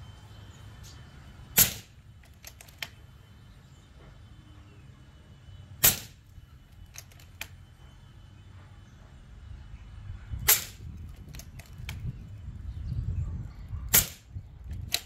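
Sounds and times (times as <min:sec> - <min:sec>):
air rifle shots: 0:01.6 - 0:02.6, 0:05.8 - 0:06.2, 0:10.4 - 0:10.9, 0:13.9 - 0:15.0.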